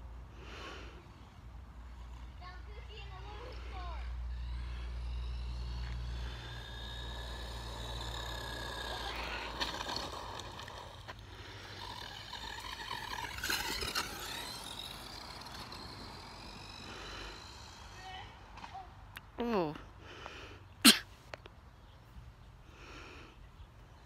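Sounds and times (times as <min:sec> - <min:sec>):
rc car electric motor whining: 0:00.9 - 0:18.7.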